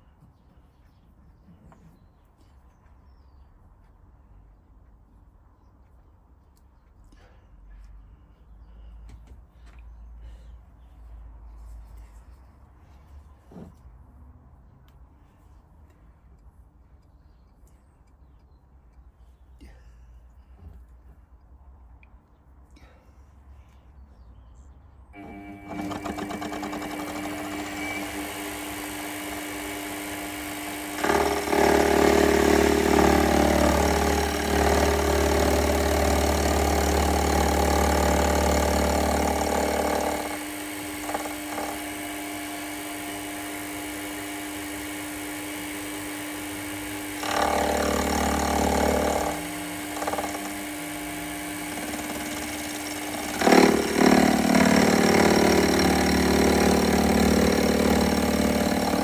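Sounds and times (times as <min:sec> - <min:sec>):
milling machine motor running: 0:25.2 - 0:59.0.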